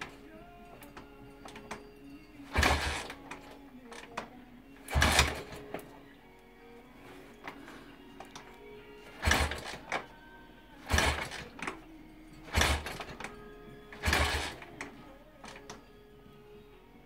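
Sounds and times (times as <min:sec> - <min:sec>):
motorcycle engine kick-start turning over: 0:00.0 - 0:01.8, 0:02.4 - 0:06.0, 0:07.2 - 0:10.2, 0:10.8 - 0:15.8.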